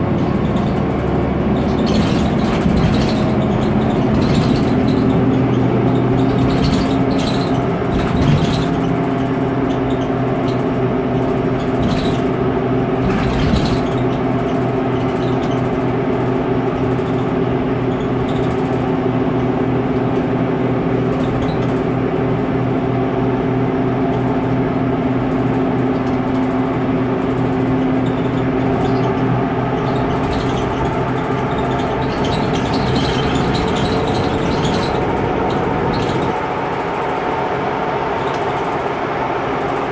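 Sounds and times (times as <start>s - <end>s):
bus engine humming: 0.0s - 39.9s
short knocks or rattles: 1.6s - 9.2s, 13.0s - 14.1s.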